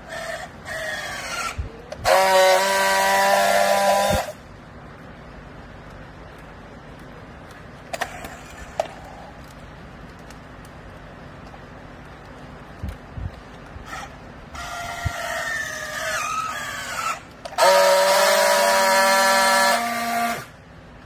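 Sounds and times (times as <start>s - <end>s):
strapping tool welding whine: 0.0s - 4.4s, 12.2s - 20.6s.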